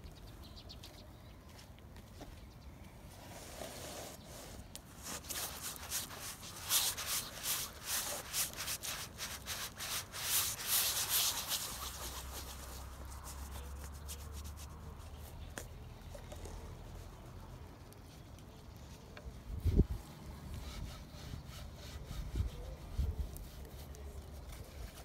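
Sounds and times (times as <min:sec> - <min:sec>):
hand scrubbing paint on canvas: 0:03.2 - 0:15.4, 0:20.3 - 0:25.0.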